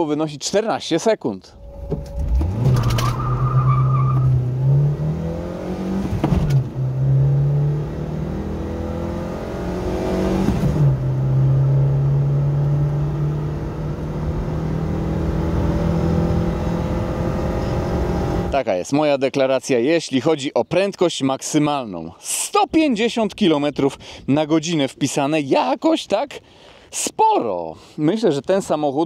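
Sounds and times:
car engine accelerating: 1.6 - 18.6.

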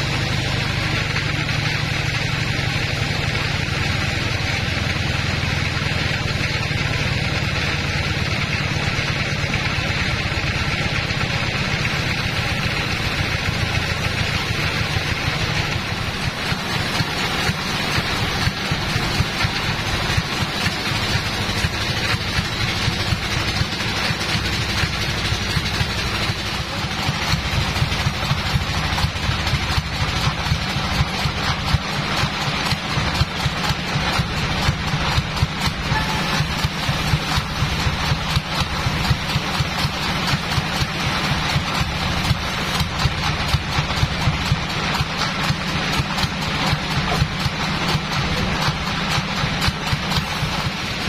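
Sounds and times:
bandsaw mill running: 0.0 - 51.0.

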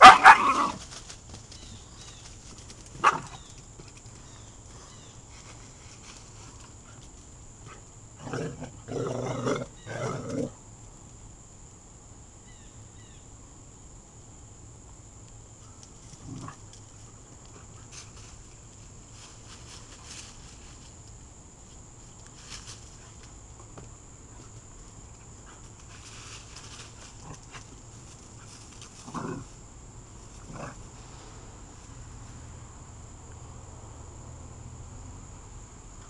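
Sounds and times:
dogs play-growling: 8.2 - 10.5, 16.1 - 16.8, 28.8 - 29.5.

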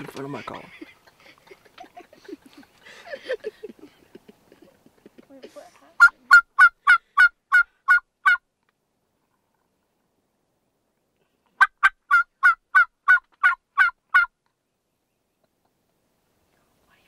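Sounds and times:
turkey call hen yelps: 6.0 - 8.4, 11.6 - 14.3.

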